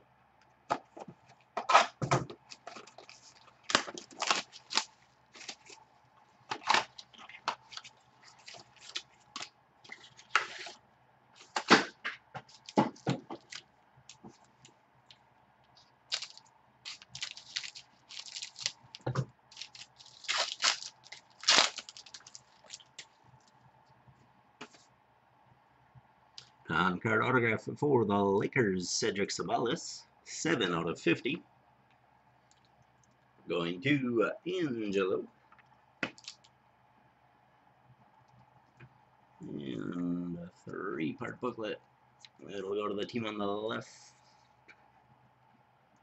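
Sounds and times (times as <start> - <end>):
faint steady hum: 0.0 - 46.0
foil wrappers crinkling and tearing: 2.5 - 5.8, 6.5 - 10.8, 12.5 - 14.3, 16.1 - 23.1, 36.2 - 36.4.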